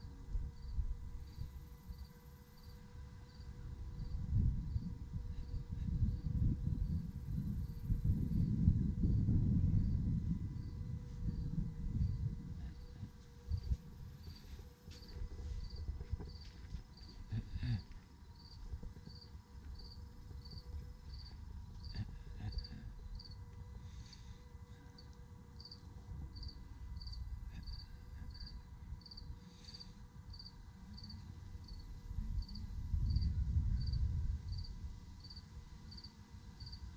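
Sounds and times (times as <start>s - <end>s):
cricket chirping: 0.0s - 9.2s, 9.8s - 36.9s
low rumble: 3.7s - 24.0s, 30.0s - 35.1s.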